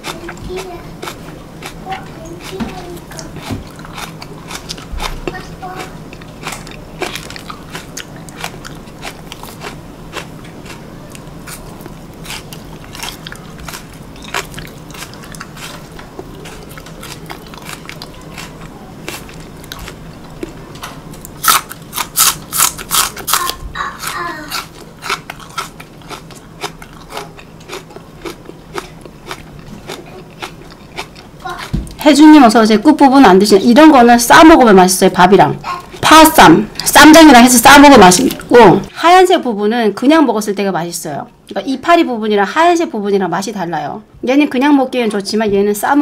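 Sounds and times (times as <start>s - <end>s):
crunchy chewing of green onion: 0.0s - 32.0s.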